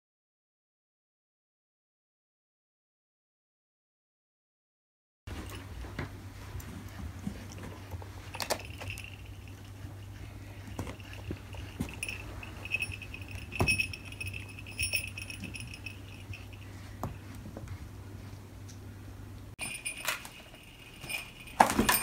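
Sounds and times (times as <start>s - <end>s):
jingle bell jingling: 8.2s - 17.0s, 19.6s - 22.0s.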